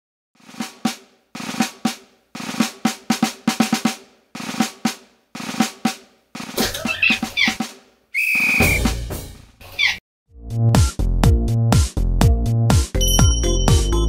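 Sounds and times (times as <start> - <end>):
snare drum rolls and hits: 0.4 - 6.8.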